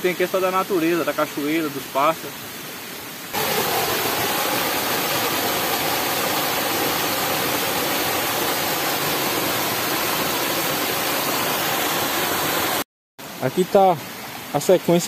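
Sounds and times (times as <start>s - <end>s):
waterfall splashing over rock: 0.0s - 15.0s.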